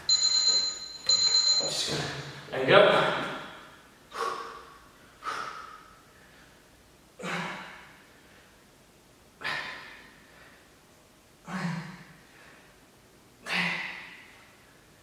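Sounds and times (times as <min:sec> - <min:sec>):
man's forceful breaths out: 0:04.1 - 0:06.6.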